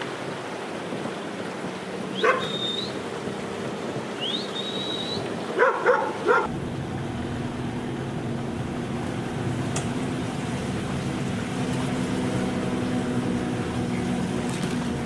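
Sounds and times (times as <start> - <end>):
dog barking: 2.2 - 2.5, 5.6 - 6.5
high thin whistles: 2.2 - 3.0, 4.2 - 5.3.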